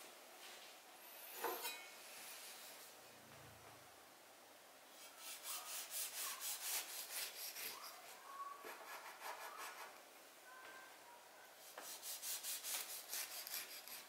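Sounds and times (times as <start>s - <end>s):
knife sawing through cake: 5.0s - 8.0s, 11.9s - 14.0s.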